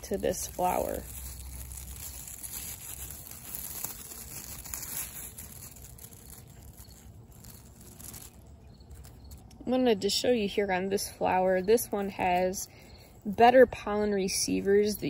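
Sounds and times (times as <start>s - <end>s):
mesh bag rustling: 0.0s - 9.6s.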